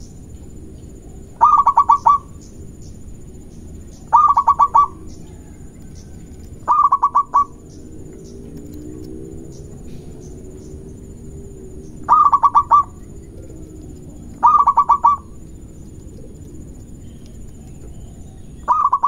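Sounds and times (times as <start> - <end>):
dove cooing: 0.0 - 2.8, 3.7 - 19.0.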